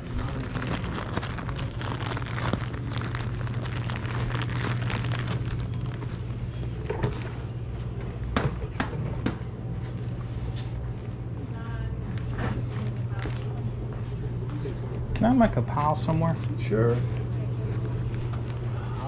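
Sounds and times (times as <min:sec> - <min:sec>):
plastic bags crinkling: 0:00.0 - 0:06.3
steady low hum: 0:00.0 - 0:19.0.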